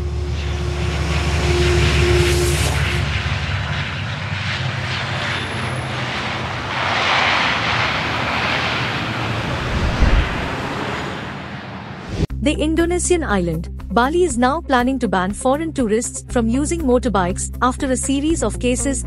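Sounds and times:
airliner engine rumble: 0.0s - 19.0s
short low boom: 9.3s - 10.8s.

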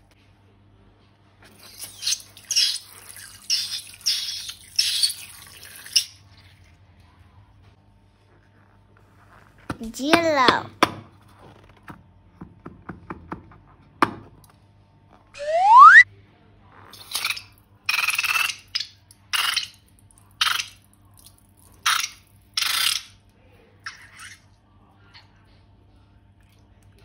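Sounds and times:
rising cartoon whistle: 15.4s - 16.0s.

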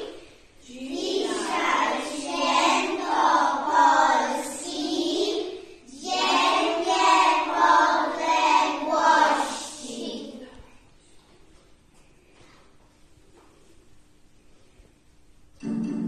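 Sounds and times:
children singing in unison: 0.0s - 10.2s.

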